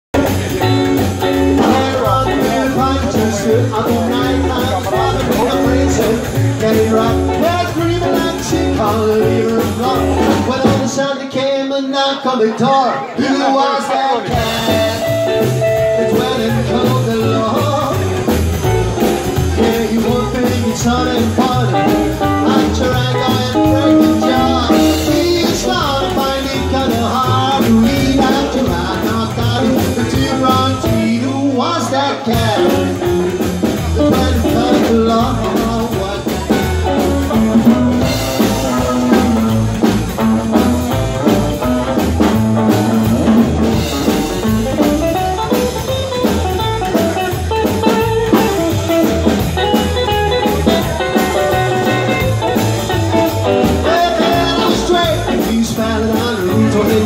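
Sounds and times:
rockabilly band playing live: 0.1 - 57.0.

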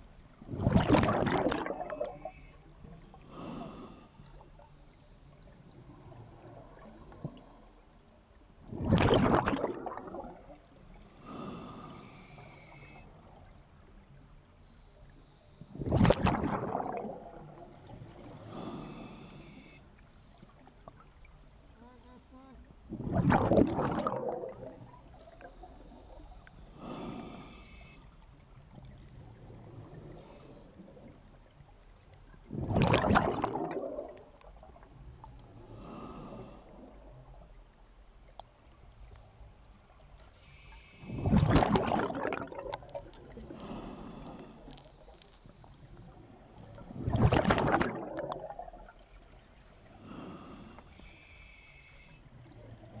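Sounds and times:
exhaled bubbles rushing: 0.4 - 2.1, 8.6 - 10.7, 15.7 - 18.3, 22.9 - 25.7, 32.4 - 35.0, 41.1 - 43.4, 46.8 - 49.3
regulator inhale hiss: 2.1 - 4.5, 10.9 - 13.2, 18.3 - 20.6, 25.6 - 28.4, 35.6 - 37.0, 40.2 - 41.3, 43.4 - 45.3, 49.9 - 52.4.

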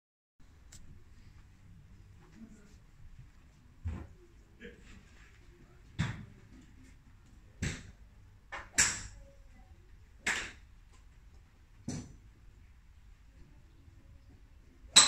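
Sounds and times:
golf clubs striking balls: 7.6 - 9.2, 10.2 - 11.0, 11.8 - 12.3.

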